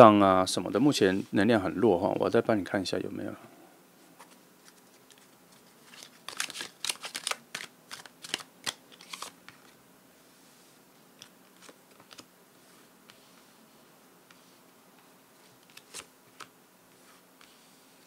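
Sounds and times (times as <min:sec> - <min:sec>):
cards shuffling and snapping: 0:04.2 - 0:09.8, 0:11.2 - 0:12.3, 0:15.6 - 0:16.5.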